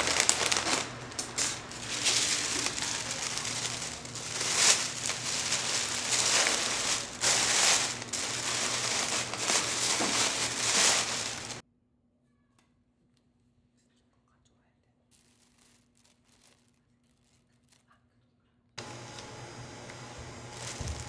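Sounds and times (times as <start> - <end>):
wrapping material crinkling: 0.0 - 11.6, 15.0 - 18.1, 20.3 - 21.0.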